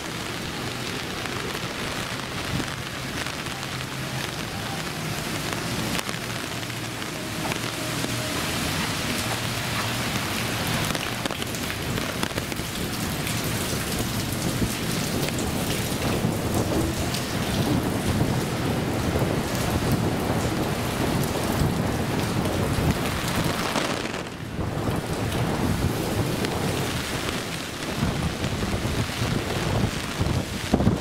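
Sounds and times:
heavy rain pattering: 0:00.0 - 0:31.0.

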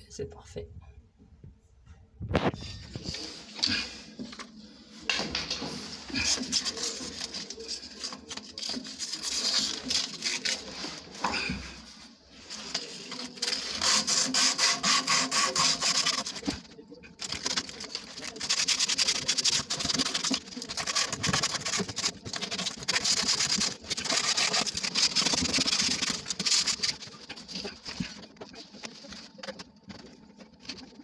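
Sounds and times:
sandpaper sanding plastic pipe: 0:06.2 - 0:11.1, 0:12.3 - 0:31.0.

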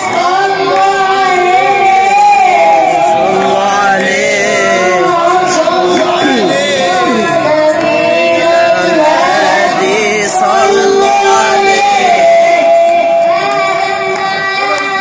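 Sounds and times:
boy chanting through speaker: 0:00.0 - 0:15.0.

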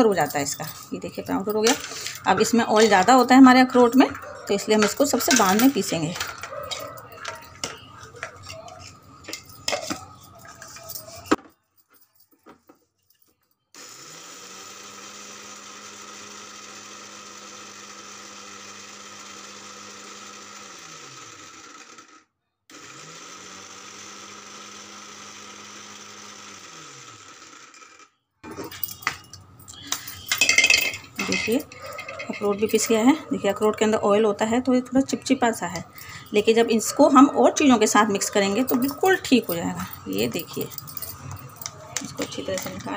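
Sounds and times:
mixer grinder motor grinding nuts: 0:00.0 - 0:11.4, 0:13.8 - 0:42.9
steel dishes and spoon clinking: 0:00.0 - 0:11.4, 0:28.4 - 0:33.6.

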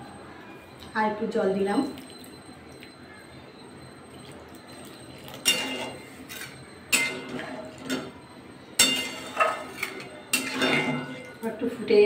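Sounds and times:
metal spatula scraping a pan: 0:08.8 - 0:11.4.

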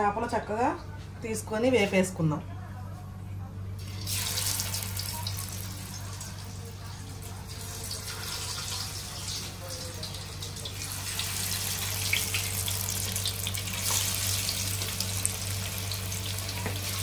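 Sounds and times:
fish sizzling in oil: 0:03.8 - 0:06.5, 0:07.5 - 0:17.0.

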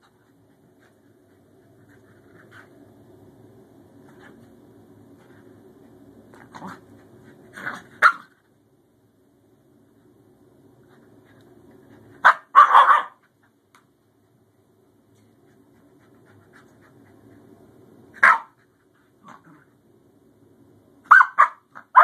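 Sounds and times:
dogs barking: 0:12.2 - 0:13.2.

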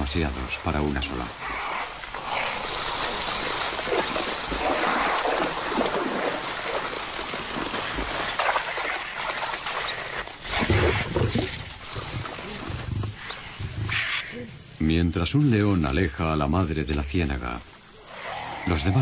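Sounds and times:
water splashing and churning: 0:00.0 - 0:13.9.

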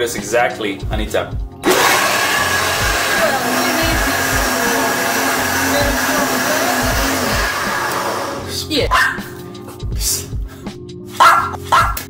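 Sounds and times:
blender running: 0:01.6 - 0:08.6.

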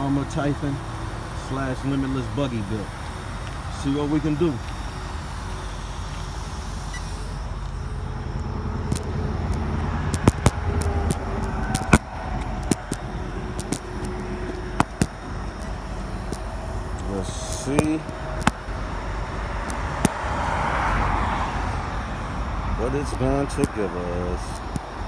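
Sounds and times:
faint motor whine: 0:00.0 - 0:25.0
rc car rumbling: 0:00.0 - 0:25.0
sharp clicks and knocks: 0:08.9 - 0:18.7.

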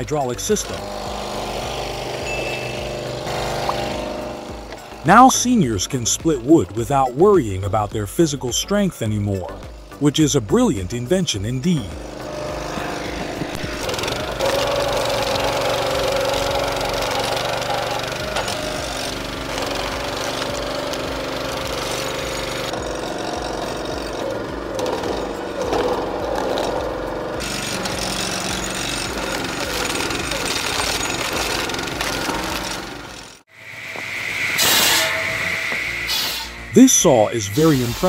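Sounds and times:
small petrol engine running: 0:00.0 - 0:07.6, 0:09.3 - 0:33.7
steady hiss: 0:33.6 - 0:38.0.

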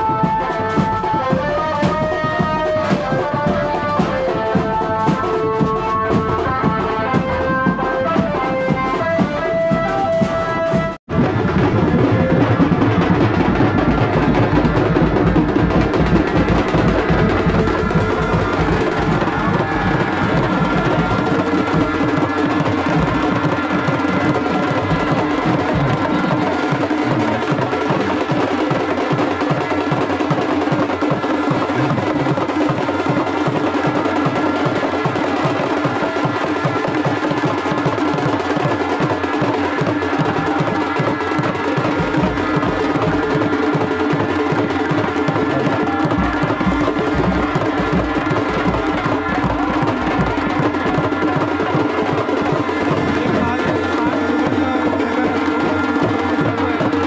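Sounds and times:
trumpet melody: 0:00.0 - 0:28.3
quick drum beat: 0:00.0 - 0:57.0
reed pipe melody: 0:00.0 - 0:57.0.

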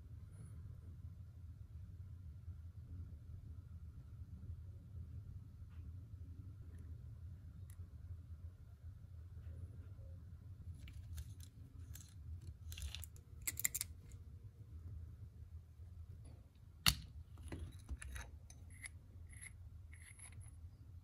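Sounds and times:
small metal parts clicking: 0:10.8 - 0:14.2, 0:16.8 - 0:20.6.

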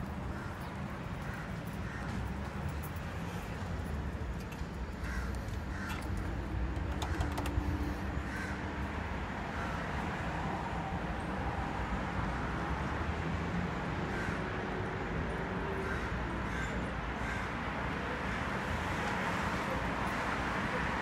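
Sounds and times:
low urban rumble: 0:00.0 - 0:21.0
sharp clicks: 0:05.3 - 0:07.9.

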